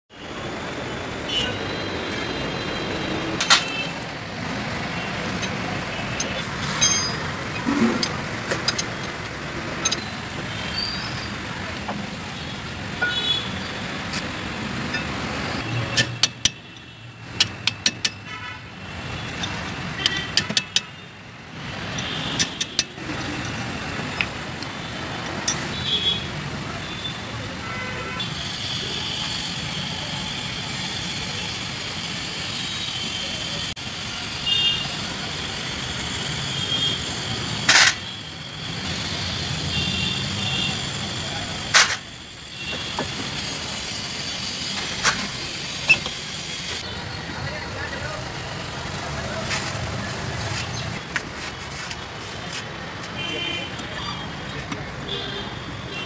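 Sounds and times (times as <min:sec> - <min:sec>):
traffic noise: 0:00.1 - 0:56.0
metal tools clinking on wheel hub: 0:03.4 - 0:12.0, 0:13.0 - 0:18.4, 0:19.1 - 0:26.0, 0:40.4 - 0:47.6.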